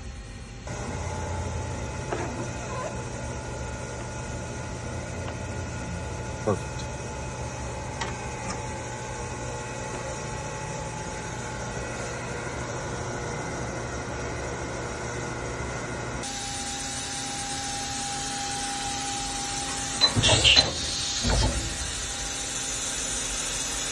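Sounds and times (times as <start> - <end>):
machine shop equipment hum: 0.0 - 23.9
machining centre spindle whine: 0.0 - 23.9
loud hiss bursts: 16.2 - 23.9.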